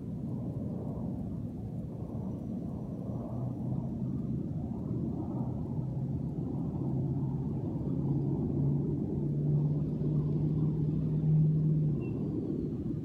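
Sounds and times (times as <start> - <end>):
vehicle engine hum: 5.3 - 13.0.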